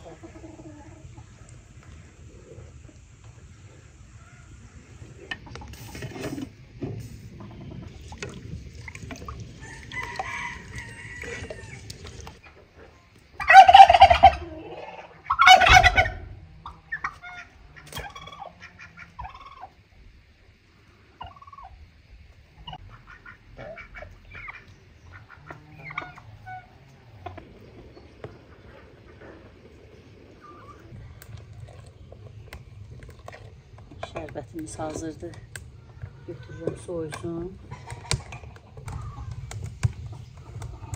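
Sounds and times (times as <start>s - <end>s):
chickens clucking: 0.0s - 8.2s, 9.3s - 19.9s, 21.2s - 21.8s, 22.4s - 40.9s
turkey gobbling: 13.3s - 19.8s, 21.2s - 21.8s, 22.6s - 27.4s.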